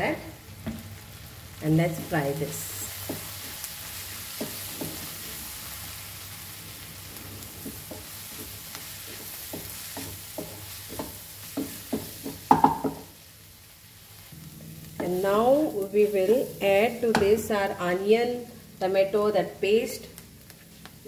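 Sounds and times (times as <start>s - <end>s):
masala sizzling in oil: 0.0s - 21.0s
wooden spatula scraping pan: 7.1s - 12.4s.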